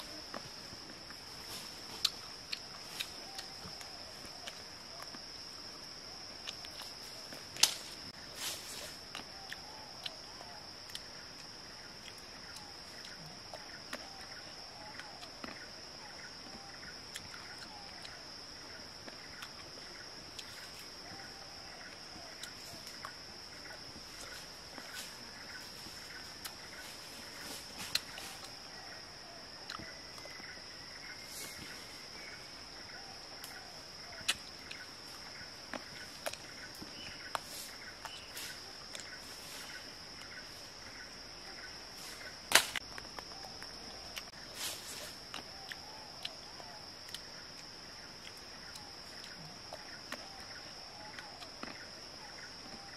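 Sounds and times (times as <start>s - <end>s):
person chewing grapes: 1.9s - 3.8s, 17.1s - 18.2s, 29.7s - 30.3s.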